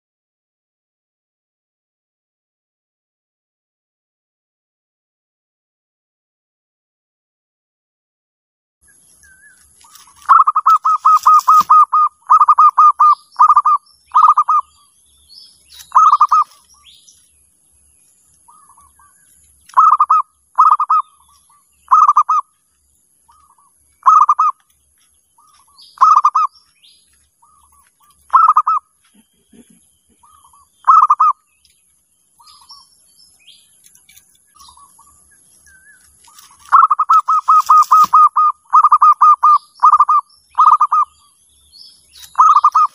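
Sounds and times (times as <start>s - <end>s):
dove cooing: 9.9s - 14.8s, 15.7s - 16.9s, 19.7s - 22.5s, 23.3s - 24.6s, 26.0s - 26.5s, 28.3s - 31.4s, 36.3s - 41.2s, 42.3s - 42.9s.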